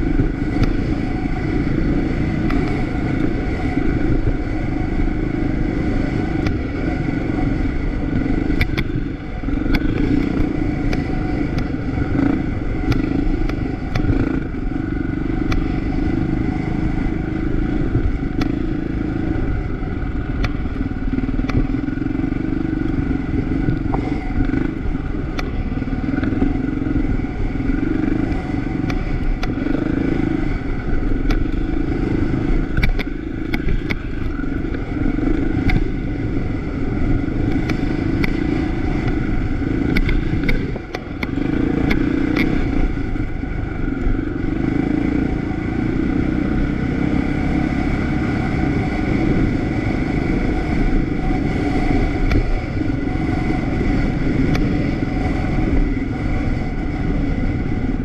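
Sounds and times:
motorcycle engine running: 0.0 - 58.0
sharp clicks and rattles: 6.3 - 16.1, 19.5 - 29.7, 30.4 - 44.6.

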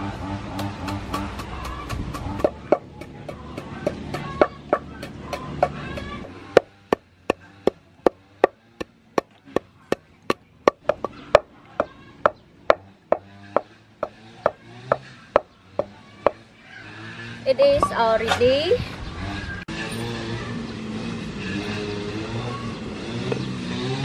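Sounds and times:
pestle pounding in wooden mortar: 0.6 - 16.4.

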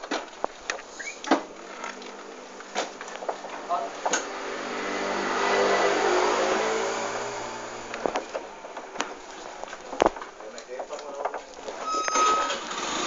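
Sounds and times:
vehicle passing by: 3.6 - 8.0.

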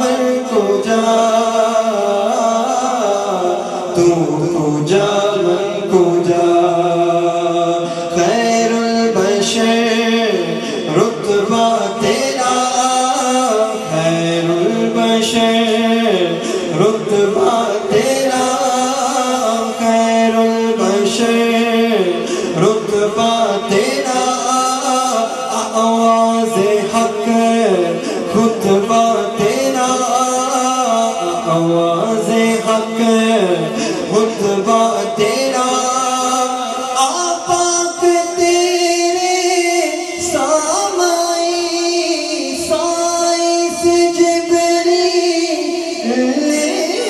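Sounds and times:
man singing unaccompanied: 0.0 - 47.0.

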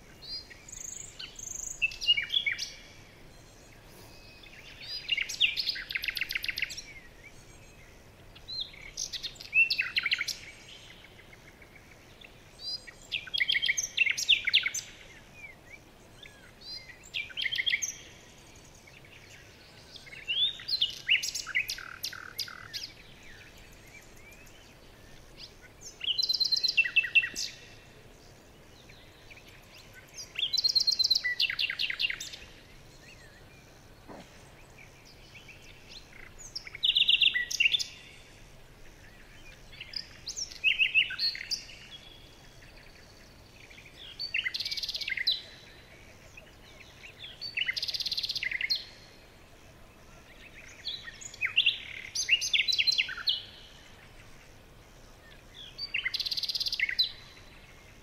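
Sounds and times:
faint background hiss: 0.0 - 58.0
songbird trilling: 0.2 - 7.7, 20.0 - 27.8, 28.8 - 38.3, 39.0 - 45.6, 50.5 - 53.9, 55.6 - 57.4.

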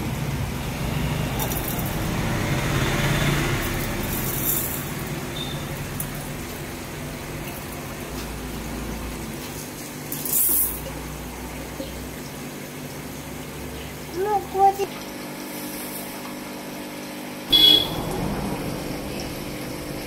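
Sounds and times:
low hum: 17.5 - 20.0.

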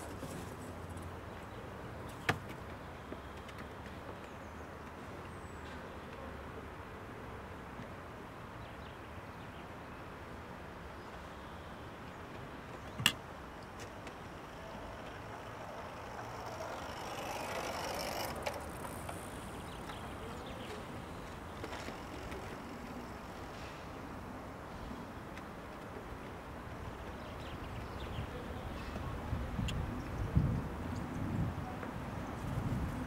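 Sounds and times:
vehicle passing: 13.8 - 24.0.

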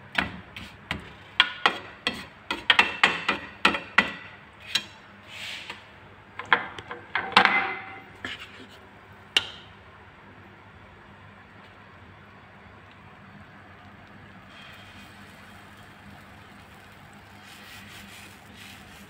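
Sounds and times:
utensils knocking on cookware: 1.4 - 5.0.

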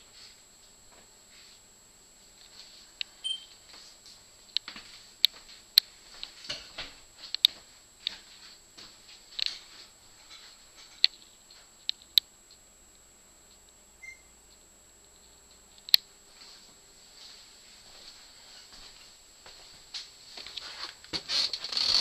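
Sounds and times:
sharp clicks and light taps: 4.5 - 8.2, 9.4 - 9.6, 10.8 - 12.6.

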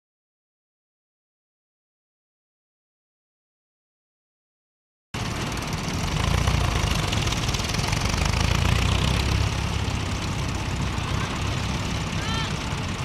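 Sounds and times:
tractor engine rumbling: 5.2 - 13.0.

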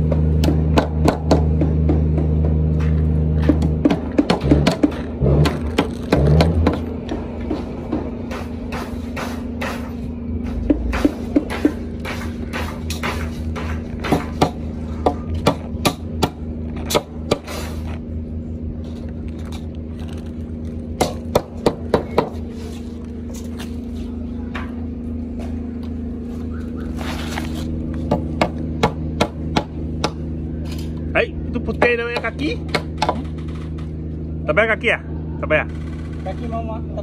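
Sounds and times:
steady machine hum: 0.0 - 37.0
hammer striking wood: 10.7 - 17.6, 21.0 - 22.4, 28.1 - 30.2.

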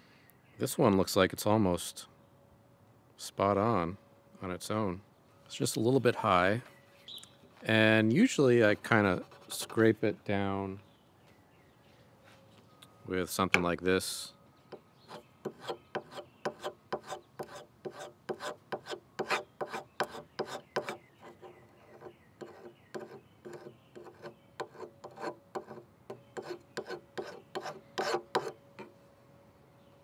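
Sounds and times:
hand scraper rasping on wood: 15.1 - 25.8, 26.4 - 28.6.

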